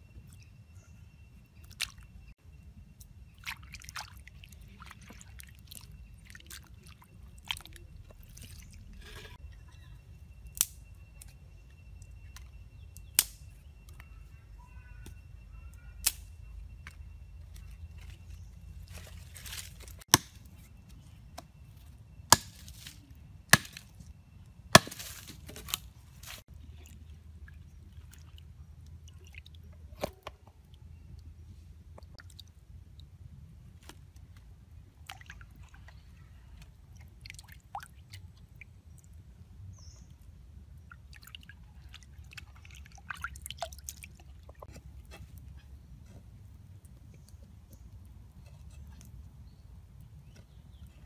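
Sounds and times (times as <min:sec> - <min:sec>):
hatchet chopping bamboo: 0:20.1 - 0:20.5, 0:22.3 - 0:22.9, 0:23.5 - 0:23.9, 0:24.7 - 0:25.8.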